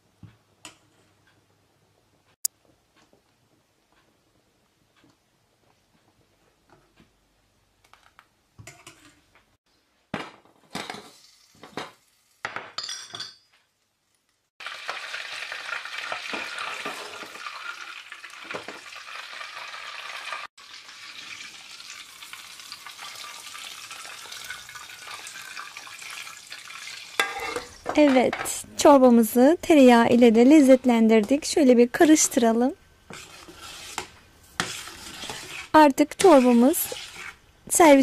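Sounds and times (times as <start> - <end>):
butter sizzling in a pan: 10.9 - 12.5, 14.0 - 28.2, 32.0 - 38.0
knocks and scrapes: 33.1 - 37.4.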